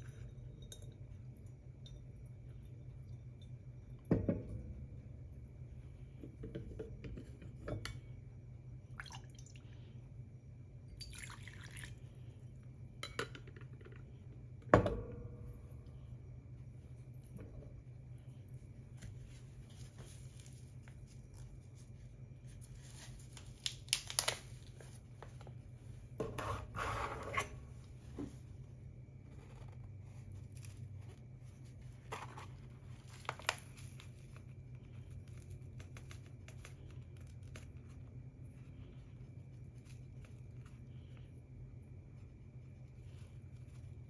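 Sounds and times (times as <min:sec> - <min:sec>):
steady low hum: 0:00.0 - 0:44.0
paper bag crinkling: 0:22.8 - 0:24.8.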